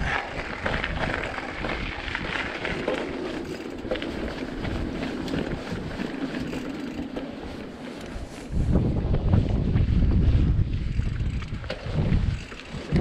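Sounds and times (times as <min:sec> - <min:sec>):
clicks and rattles from stones: 0:00.0 - 0:04.2
bike tyres rolling over gravel: 0:00.0 - 0:13.0
wind noise on microphone: 0:00.0 - 0:13.0.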